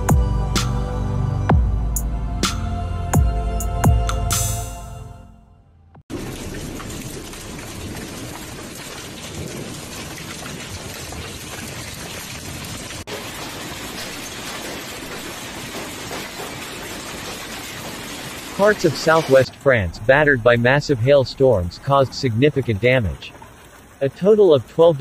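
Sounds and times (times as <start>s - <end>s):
hailstones clattering on ground and water: 6.1s - 19.4s.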